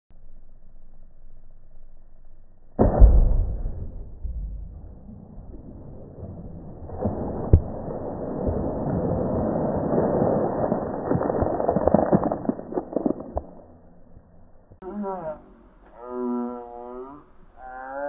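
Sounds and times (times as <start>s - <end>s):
sharp knock: 2.8s - 5.1s
water splashing onto pavement: 5.0s - 13.7s.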